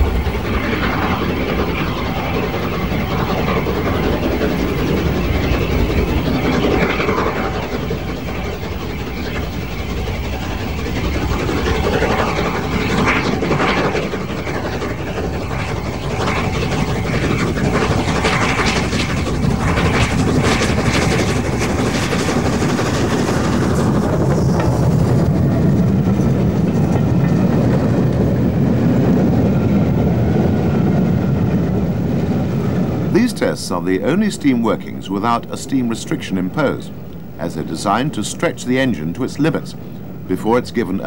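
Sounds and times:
steam locomotive exhaust: 0.0 - 29.2
train running on rails: 0.0 - 41.0.

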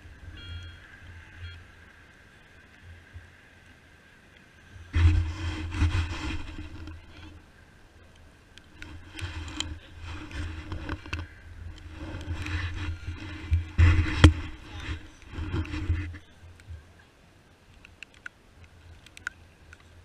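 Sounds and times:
wind buffeting microphone: 4.8 - 17.0
sharp knocks and scrapes: 4.9 - 7.4, 8.8 - 16.2.

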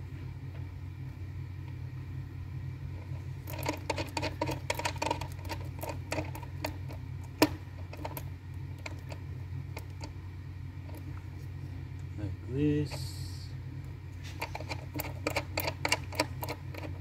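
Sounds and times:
steady low hum: 0.0 - 17.0
small clicks and taps on wires: 14.4 - 17.0.

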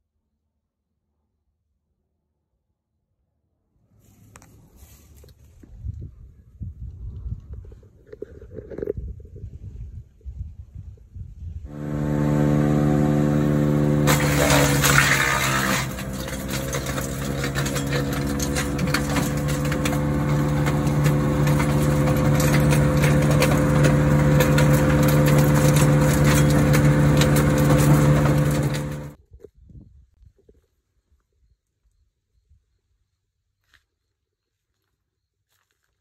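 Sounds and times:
small gasoline engine running: 11.7 - 29.2
wood chipper grinding: 11.7 - 29.2
wood cracking: 13.1 - 29.2.

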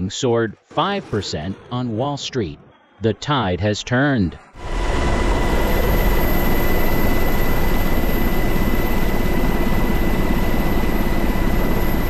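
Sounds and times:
jet engines roaring: 4.5 - 12.0.

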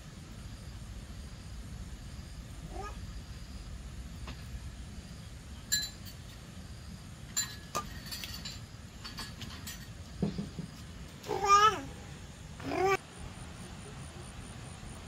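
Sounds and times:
steady low rumble: 0.0 - 5.6
light ringing clinks: 5.7 - 6.4, 7.3 - 10.1.

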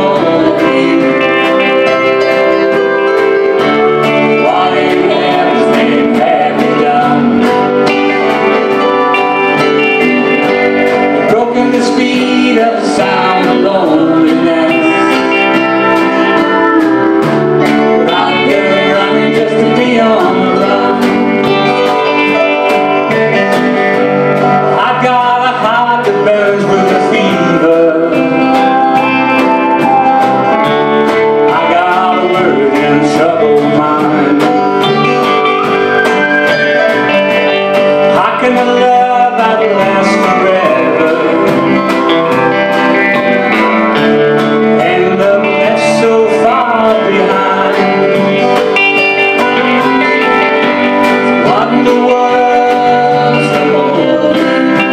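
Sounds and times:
man and woman singing: 0.0 - 2.7, 4.0 - 8.1, 11.2 - 22.1, 24.7 - 30.0, 31.4 - 36.4, 38.1 - 42.9, 44.6 - 54.9
electric guitar: 0.0 - 54.9
steady drum beat: 0.0 - 54.9.

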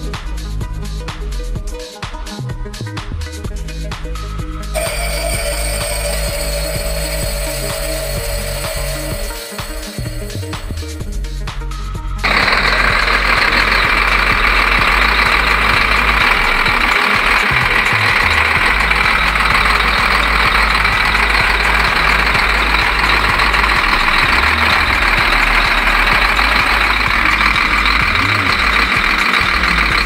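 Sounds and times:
diesel engine idling: 4.8 - 11.5, 12.1 - 30.0.

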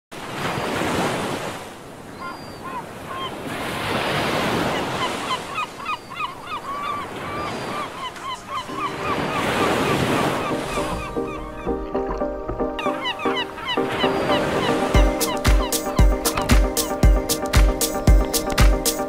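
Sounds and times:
sea waves: 0.1 - 19.0.

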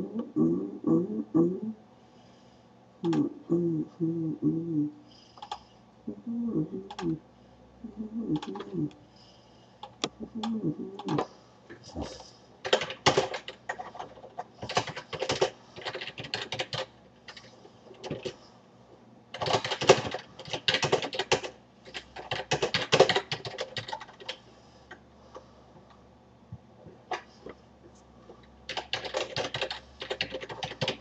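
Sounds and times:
keyboard typing: 5.4 - 5.6, 8.3 - 9.0, 9.8 - 11.3, 12.6 - 18.4, 19.3 - 24.4, 28.4 - 31.0.

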